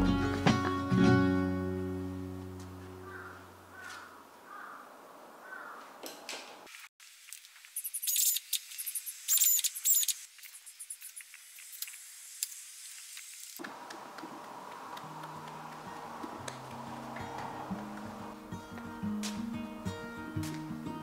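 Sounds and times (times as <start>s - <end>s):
acoustic guitar music: 0.0s - 3.3s, 15.0s - 21.0s
high-pitched chirps and squeaks: 7.8s - 12.0s.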